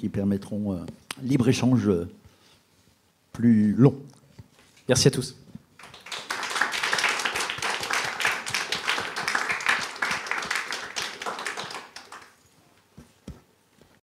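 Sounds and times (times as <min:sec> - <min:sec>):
audience applauding: 0:05.8 - 0:12.4.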